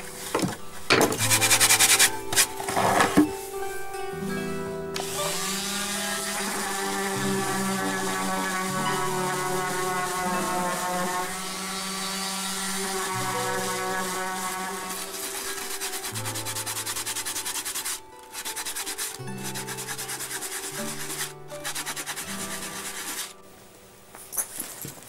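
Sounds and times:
quiet background music: 0.0s - 25.0s
orbital sander on wood: 1.2s - 2.4s, 5.0s - 23.3s
hand sanding strokes: 1.2s - 3.1s, 5.0s - 23.4s.

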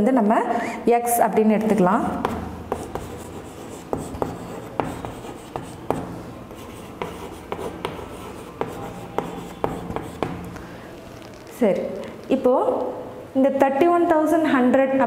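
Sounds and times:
chalk tapping and scratching: 1.7s - 10.8s.

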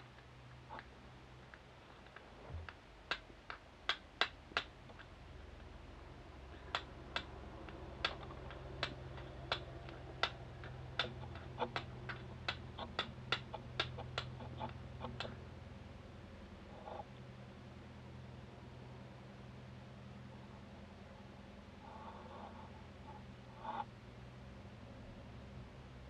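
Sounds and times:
steel striker clicking on stone: 6.7s - 14.3s.

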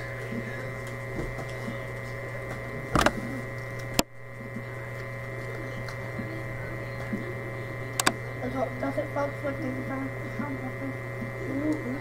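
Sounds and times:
electrical hum: 0.0s - 12.0s
sharp click: 8.0s - 8.2s.

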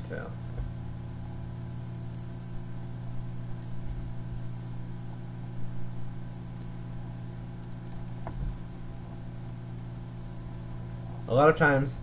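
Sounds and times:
electrical hum: 0.0s - 12.0s
faint mouse clicks: 7.7s - 8.4s.

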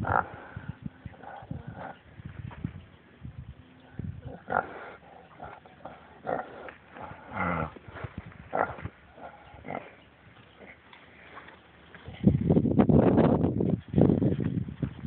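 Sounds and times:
pig grunting: 0.0s - 2.0s, 4.1s - 10.8s
pig snuffling and snorting: 4.3s - 12.3s.

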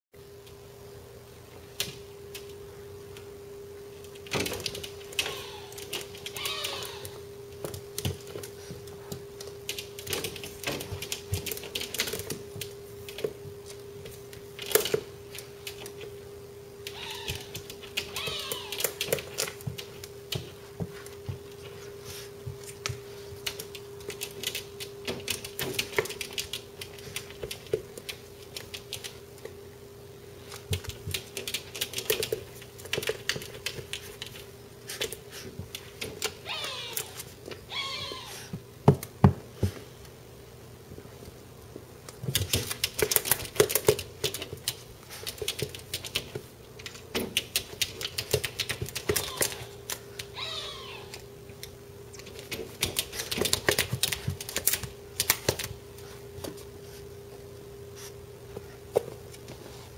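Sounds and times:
steady low hum: 0.2s - 59.9s
puppy whining: 5.1s - 7.3s, 16.8s - 19.5s, 36.2s - 38.6s, 48.9s - 51.3s.

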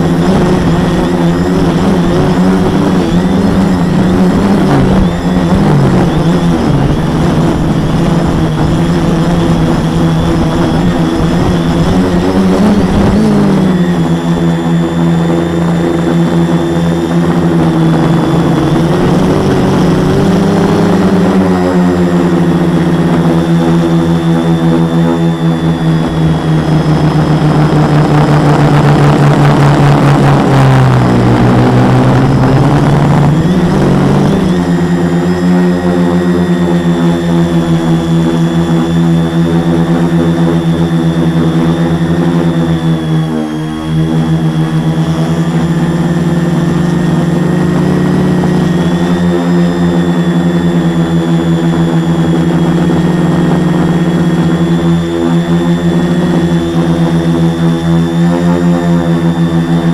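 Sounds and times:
quadcopter motors buzzing: 0.0s - 59.9s.

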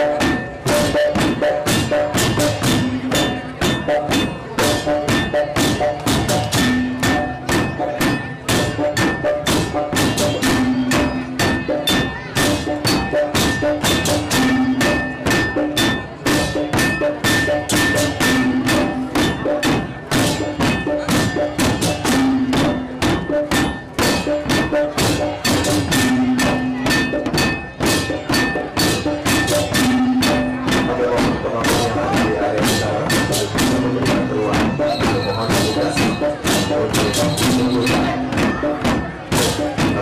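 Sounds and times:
bamboo beaters and drums: 0.0s - 40.0s
gongs ringing: 0.0s - 40.0s.

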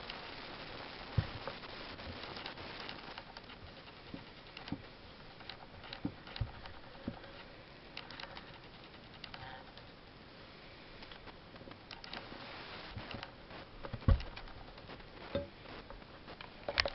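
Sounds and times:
faint hiss: 0.0s - 16.9s.

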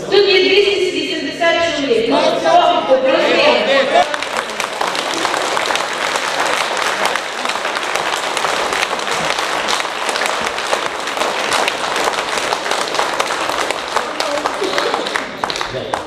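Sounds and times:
audience applauding: 3.8s - 16.0s.

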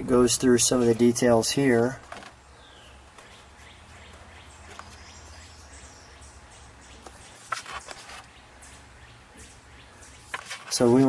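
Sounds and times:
paper page rustling: 2.0s - 2.4s, 4.7s - 5.6s, 7.0s - 8.4s, 10.2s - 11.0s.

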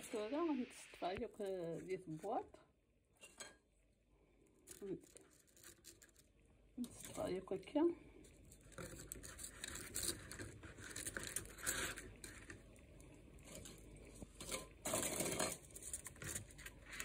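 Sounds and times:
dry toast rustling and crinkling: 4.5s - 7.4s, 8.3s - 17.0s.

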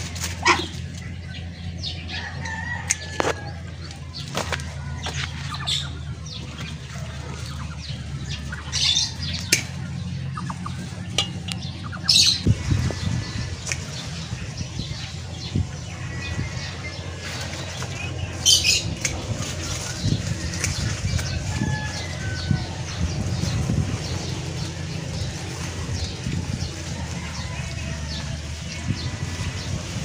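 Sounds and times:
chickens squawking: 0.0s - 30.0s
clicks and rustles of dry vine: 2.5s - 5.7s, 17.2s - 22.8s.

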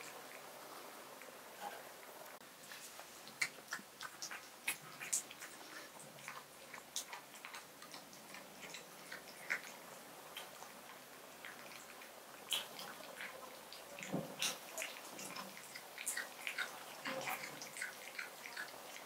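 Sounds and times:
cat chewing and licking: 2.0s - 19.0s.

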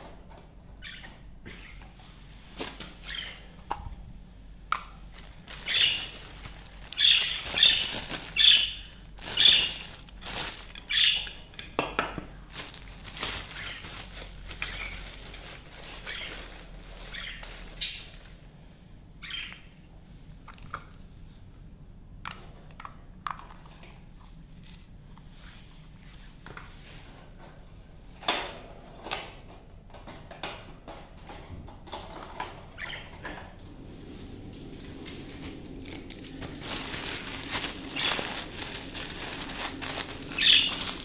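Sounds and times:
budgerigars chirping: 3.1s - 3.4s, 5.6s - 6.2s, 7.0s - 9.9s, 10.9s - 11.5s, 13.6s - 13.9s, 16.0s - 16.4s, 17.1s - 18.1s, 19.2s - 19.7s, 32.8s - 33.1s, 40.4s - 40.8s
plastic bag crinkling: 5.0s - 18.4s, 35.8s - 41.0s.

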